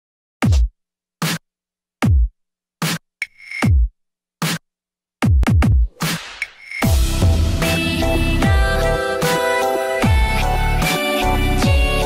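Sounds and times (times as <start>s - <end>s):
drum machine bass hits: 0.4s - 1.4s, 2.0s - 3.0s, 3.6s - 4.6s, 5.2s - 10.4s.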